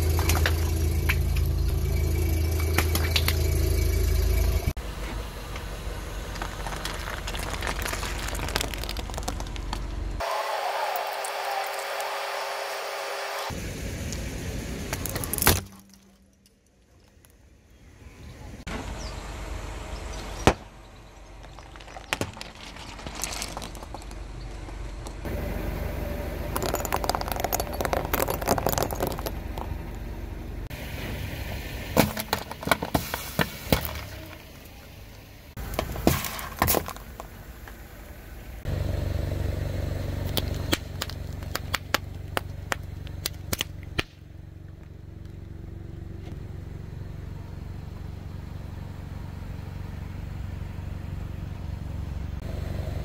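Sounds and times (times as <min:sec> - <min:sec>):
low engine hum: 0:00.0 - 0:10.2, 0:13.4 - 0:53.0
tyre crushing objects: 0:06.4 - 0:10.0, 0:21.4 - 0:24.2, 0:35.6 - 0:37.3.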